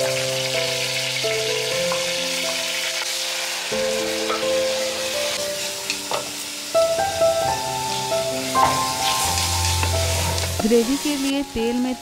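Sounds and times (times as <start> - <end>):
background music with held notes: 0.0 - 12.0
onion sizzling in oil: 0.0 - 12.0.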